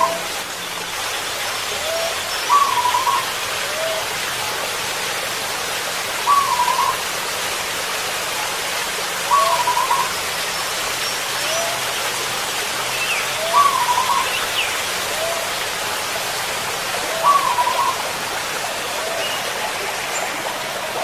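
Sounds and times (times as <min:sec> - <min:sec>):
dove cooing: 0:01.8 - 0:04.0, 0:06.3 - 0:07.0, 0:09.3 - 0:10.1, 0:13.4 - 0:14.3, 0:17.0 - 0:18.0.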